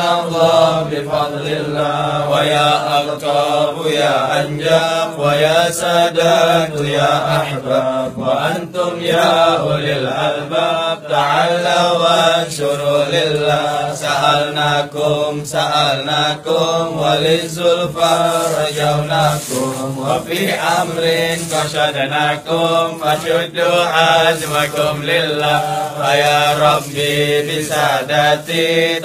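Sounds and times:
voices chanting slow melody: 0.0s - 29.0s.

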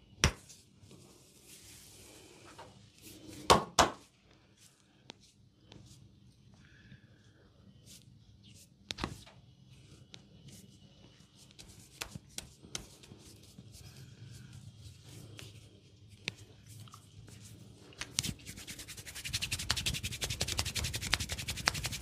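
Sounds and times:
hands rubbing skin and hair: 11.3s - 16.5s, 17.3s - 22.0s.

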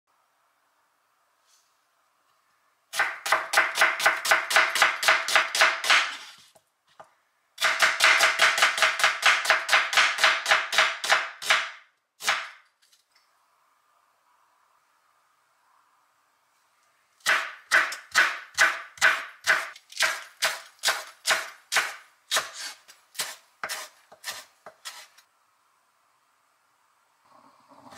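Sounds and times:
knife slicing onion on wood: 2.9s - 6.5s, 7.6s - 12.6s, 17.2s - 25.2s.

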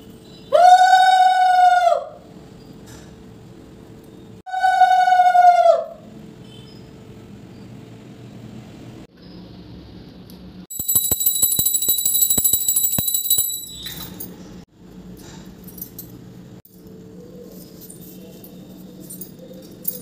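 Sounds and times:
hand bell rung rapidly: 10.7s - 14.1s.

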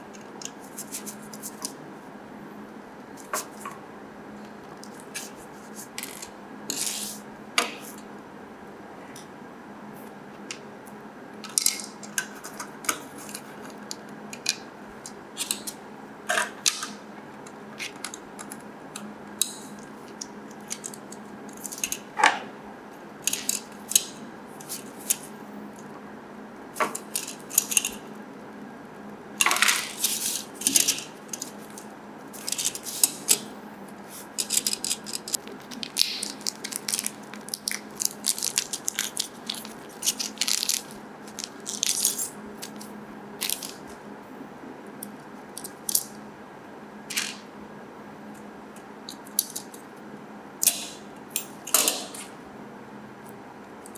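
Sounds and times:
plastic bag crinkling: 34.5s - 42.0s.

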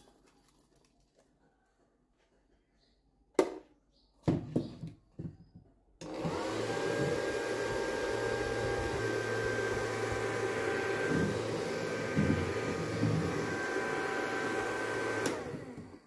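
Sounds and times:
vacuum motor whine: 6.0s - 16.0s.

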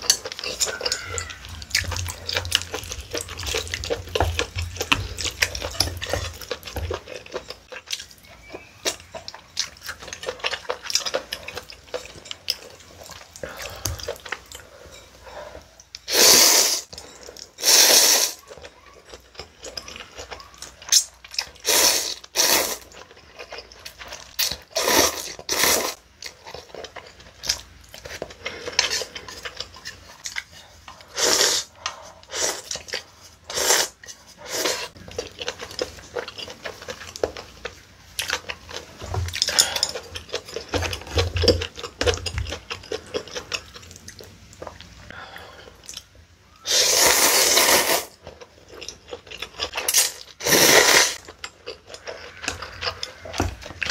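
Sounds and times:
chewing: 0.0s - 53.9s
noodles slurped: 21.5s - 23.0s, 24.4s - 26.0s, 31.0s - 35.0s, 46.6s - 48.2s, 49.8s - 53.2s.

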